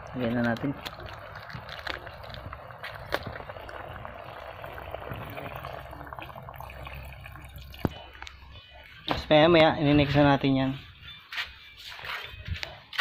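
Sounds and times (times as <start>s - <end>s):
fire pops and crackles: 0.0s - 6.4s
pot boiling over wood fire: 0.0s - 10.8s.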